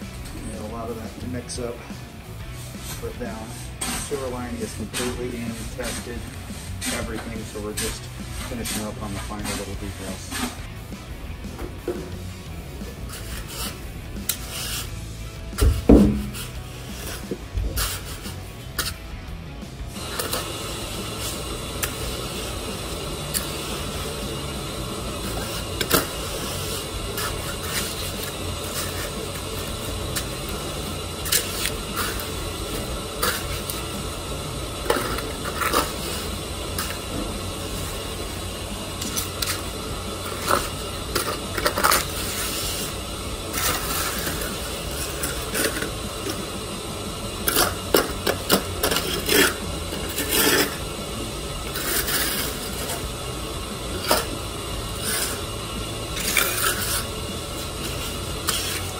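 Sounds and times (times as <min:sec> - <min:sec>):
trowel scraping wet concrete: 0:02.5 - 0:10.7, 0:12.9 - 0:15.0, 0:15.6 - 0:19.1, 0:25.1 - 0:34.0, 0:34.8 - 0:37.1, 0:39.0 - 0:46.4, 0:47.4 - 0:50.9, 0:51.6 - 0:53.0, 0:54.0 - 0:55.4, 0:56.2 - 0:58.9.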